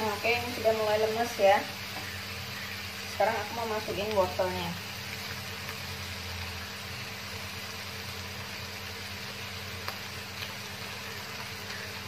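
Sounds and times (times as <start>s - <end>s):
vegetables sizzling in a wok: 0.0s - 12.0s.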